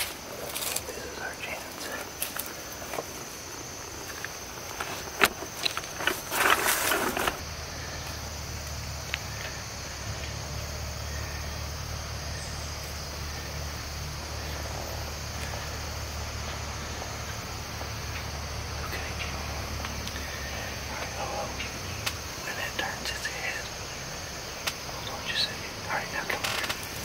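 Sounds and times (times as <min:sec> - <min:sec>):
steady low hum: 0:00.0 - 0:27.0
clothing and gear rustling: 0:04.0 - 0:07.4.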